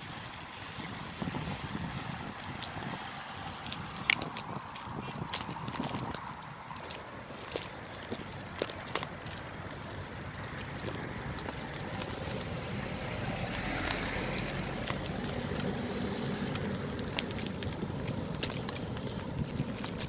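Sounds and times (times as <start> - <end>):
wind noise on microphone: 0.0 - 20.0
bus engine passing: 9.4 - 19.8.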